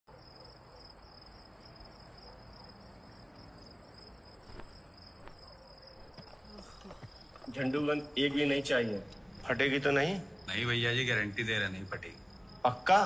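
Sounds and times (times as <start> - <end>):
crickets chirping: 0.1 - 13.0.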